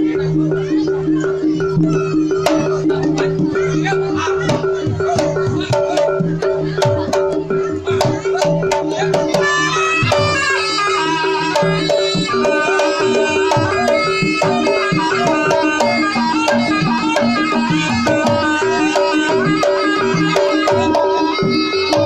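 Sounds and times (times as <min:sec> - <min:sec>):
hand drums and percussion: 0:00.0 - 0:22.0
reedy wind instrument melody: 0:08.9 - 0:22.0.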